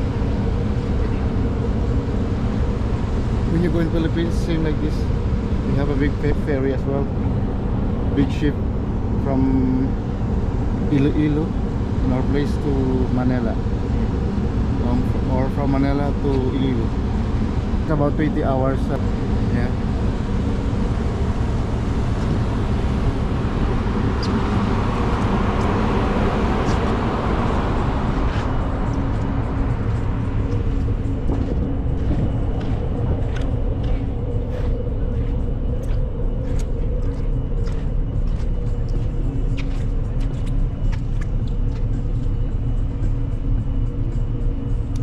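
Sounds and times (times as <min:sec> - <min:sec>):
ship engines rumbling: 0:00.0 - 0:45.0.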